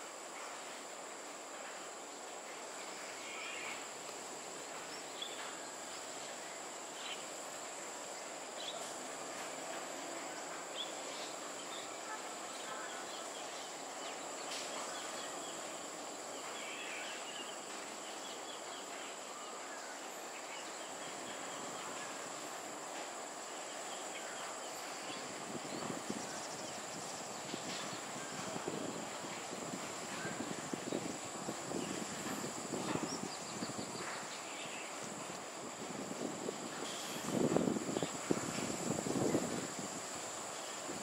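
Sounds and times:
background noise: 0:00.0 - 0:41.0.

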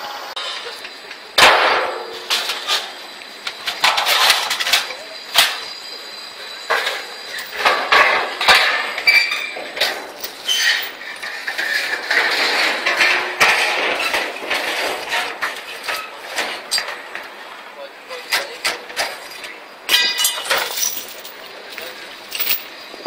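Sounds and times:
scrap metal clanking and banging: 0:00.4 - 0:17.4, 0:18.1 - 0:23.0
high scraping squeals: 0:03.6 - 0:16.5.

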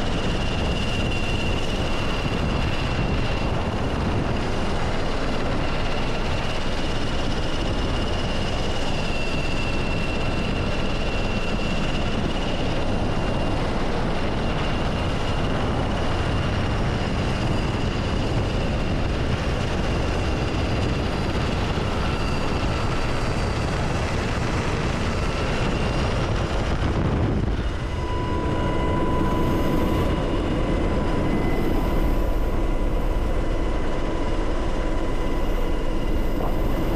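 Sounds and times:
helicopter engine and rotor noise: 0:00.0 - 0:36.9
high-pitched whine: 0:00.0 - 0:36.9
mid-pitched whine: 0:21.1 - 0:36.9.

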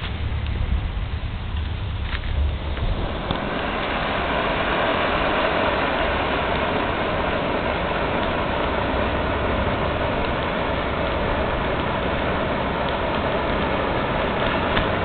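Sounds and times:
firework spraying sparks hissing: 0:00.0 - 0:15.0.

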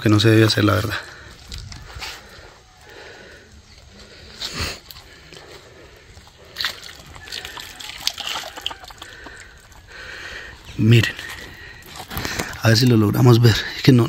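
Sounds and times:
water sloshing and splashing: 0:06.3 - 0:10.1.

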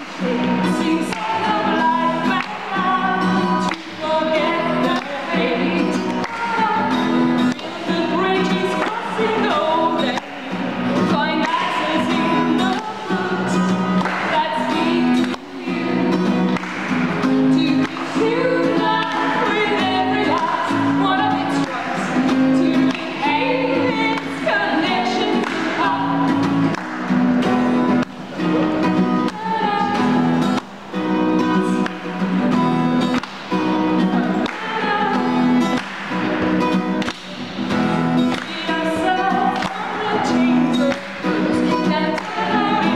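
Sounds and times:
women singing: 0:00.0 - 0:16.6, 0:17.2 - 0:26.7, 0:29.2 - 0:30.6, 0:33.9 - 0:35.8, 0:38.2 - 0:42.9
acoustic guitar strumming: 0:00.0 - 0:42.9.

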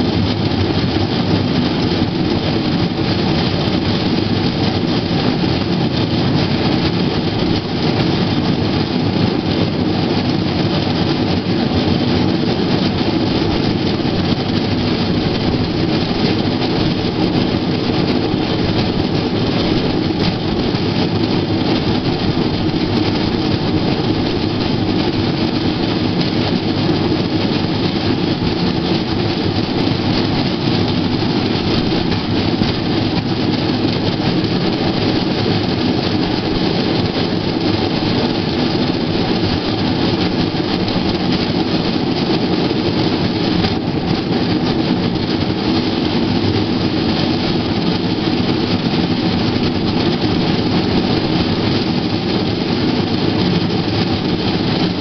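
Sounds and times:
steel wheels rumbling on track: 0:00.0 - 0:55.0.

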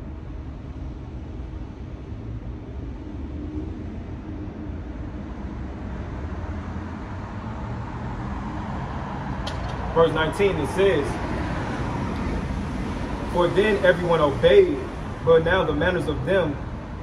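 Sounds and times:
road traffic rumble: 0:00.0 - 0:17.0.

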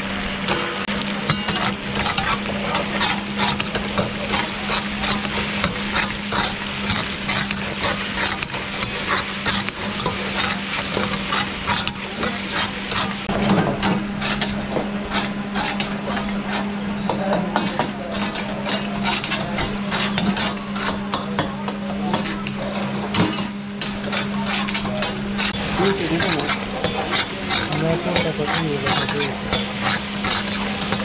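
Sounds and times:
meat sizzling in a pan: 0:00.0 - 0:21.5, 0:23.6 - 0:31.0
stirring tool scraping pan: 0:00.5 - 0:31.0.

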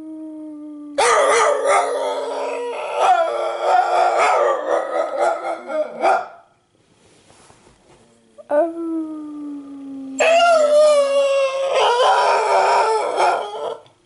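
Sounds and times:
low held dog howl: 0:00.0 - 0:06.0, 0:10.2 - 0:13.9
dog howling: 0:00.9 - 0:06.1, 0:10.2 - 0:13.9.

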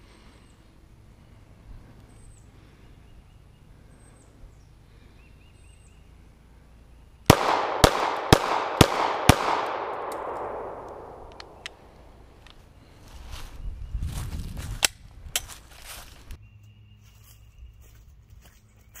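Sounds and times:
pistol shots with echo: 0:07.3 - 0:12.0.

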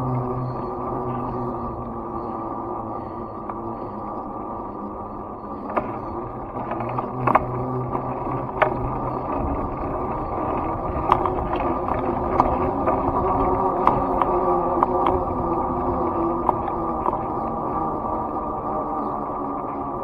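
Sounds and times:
rumble of riding on concrete: 0:00.0 - 0:20.0
sharp clicks and knocks: 0:05.6 - 0:09.6, 0:10.4 - 0:15.2.

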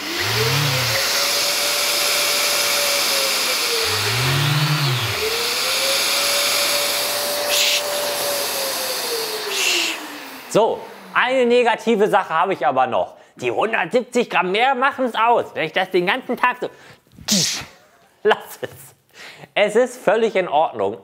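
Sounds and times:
dust extraction rushing hiss: 0:00.0 - 0:11.3
electric sanders running: 0:00.0 - 0:11.6.

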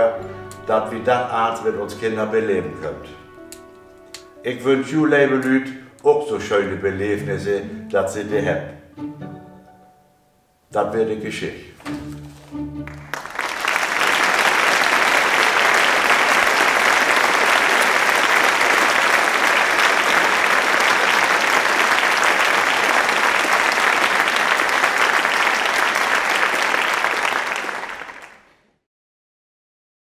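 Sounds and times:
applause: 0:12.8 - 0:28.6.

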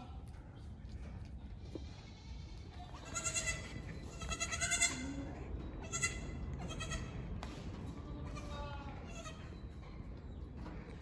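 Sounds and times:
goat kid bleating: 0:01.8 - 0:07.2, 0:08.2 - 0:09.6.

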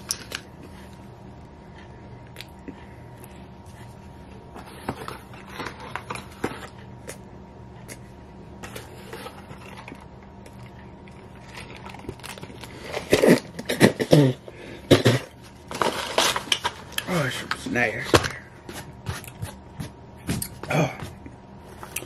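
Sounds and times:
packaging crinkling: 0:11.0 - 0:14.0, 0:15.6 - 0:17.6.

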